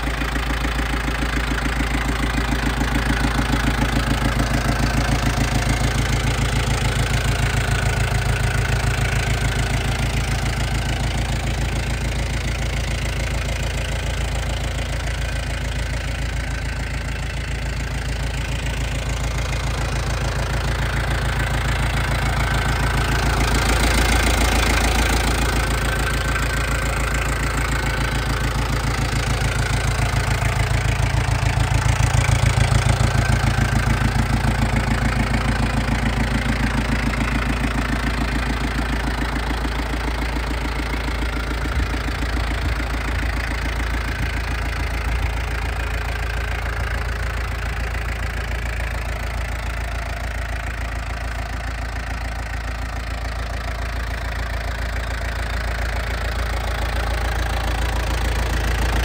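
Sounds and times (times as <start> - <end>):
tractor diesel engine idling: 0.0 - 59.0.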